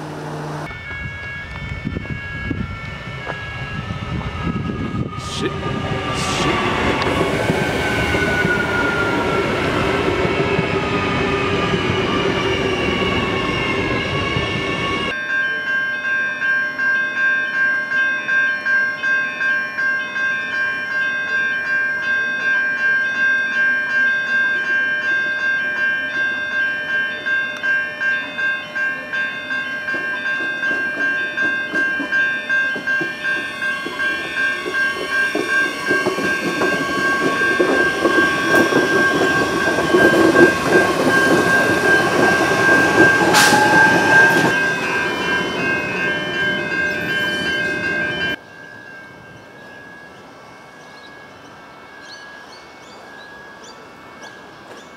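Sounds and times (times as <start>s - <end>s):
motor whine: 0.0s - 0.9s
electric train passing: 0.0s - 54.9s
pulsing warning tone: 32.8s - 48.4s.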